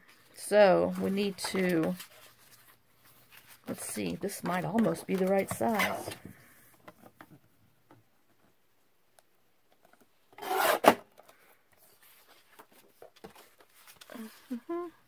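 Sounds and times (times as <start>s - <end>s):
paper rustling and tapping: 3.3s - 6.3s.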